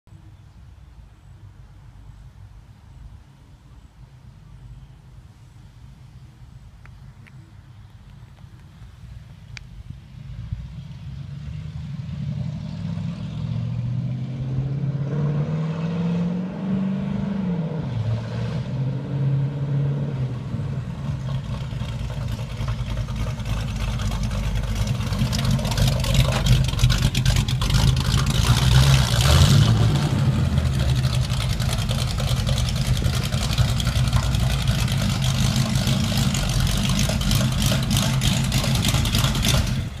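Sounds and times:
car engine revving: 10.3s - 40.0s.

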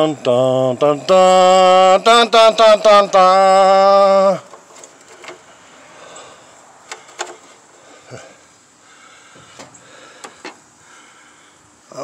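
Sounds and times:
sharp clicks and light knocks: 4.5s - 5.5s, 6.8s - 7.6s, 9.4s - 10.6s.

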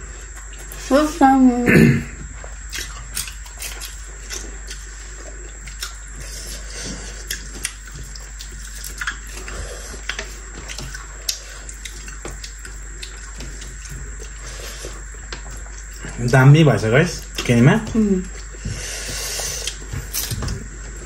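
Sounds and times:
chewing with wet clicks: 2.4s - 16.1s, 19.5s - 20.6s.

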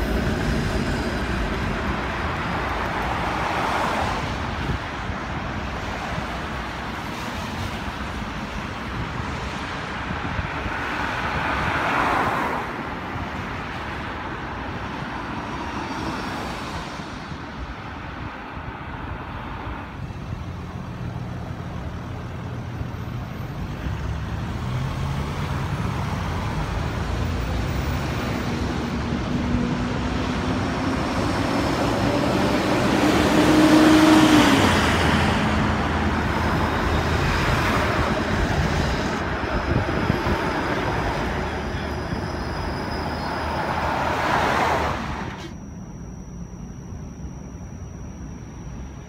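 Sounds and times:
passing road traffic: 0.0s - 49.0s
streetcar passing on tracks: 0.0s - 49.0s.

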